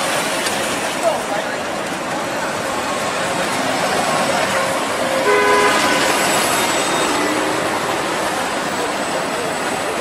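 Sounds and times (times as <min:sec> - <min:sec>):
street traffic: 0:00.0 - 0:10.0
bus driving past: 0:02.4 - 0:10.0.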